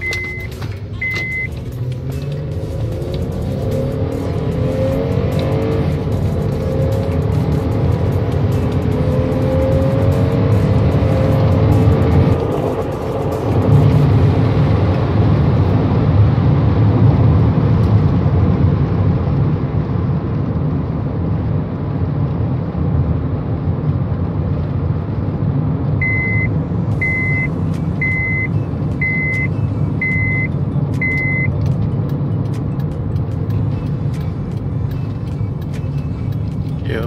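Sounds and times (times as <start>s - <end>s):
turn signal beeps: 0.0s - 2.3s, 26.0s - 36.8s
engine and road noise in car cabin: 0.0s - 37.0s.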